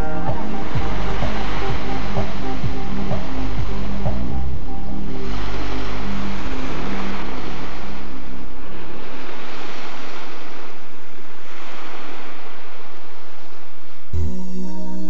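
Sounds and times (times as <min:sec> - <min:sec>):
background music: 0:00.0 - 0:07.9, 0:14.2 - 0:15.0
rushing sea: 0:00.0 - 0:14.2.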